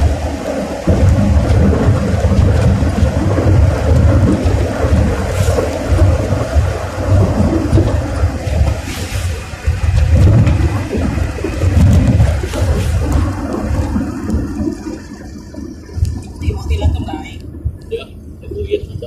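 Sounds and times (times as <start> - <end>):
car interior rumble: 0.0 - 19.0
wind buffeting microphone: 0.0 - 19.0.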